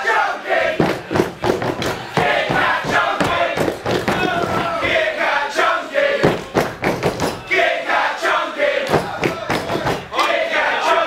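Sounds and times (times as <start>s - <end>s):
crowd shouting and chanting: 0.0s - 11.0s
thuds on ring canvas: 0.7s - 5.0s, 6.2s - 7.5s, 8.9s - 10.1s.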